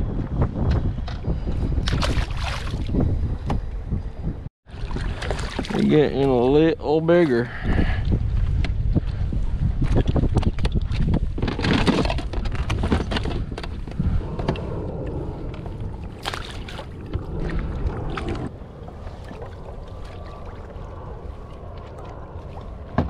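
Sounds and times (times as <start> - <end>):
wind noise on microphone: 0.0 - 23.0
water sloshing against kayak: 4.7 - 6.6, 9.8 - 23.0.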